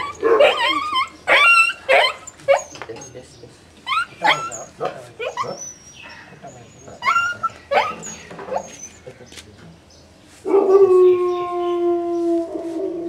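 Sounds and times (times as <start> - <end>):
puppy yelping and howling: 0.0 - 2.8, 3.9 - 6.0, 6.8 - 9.0, 10.5 - 13.0.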